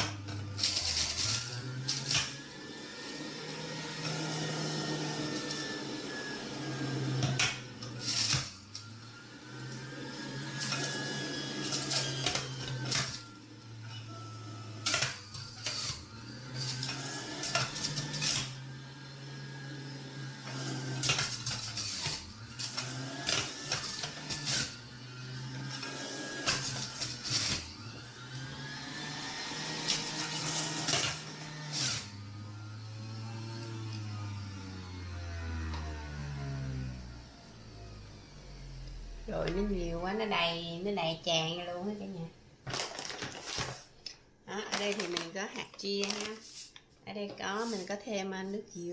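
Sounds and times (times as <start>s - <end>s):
juicer motor whine: 0.0s - 46.9s
clatters and knocks of produce: 42.6s - 43.9s.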